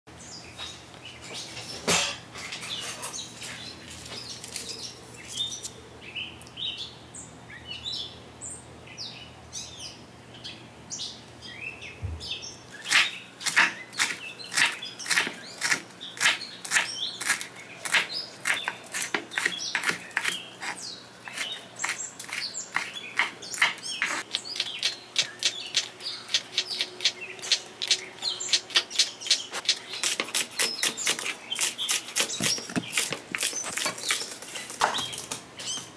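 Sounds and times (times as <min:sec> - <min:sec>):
knife chopping on wooden board: 0:21.3 - 0:24.2, 0:29.7 - 0:34.1.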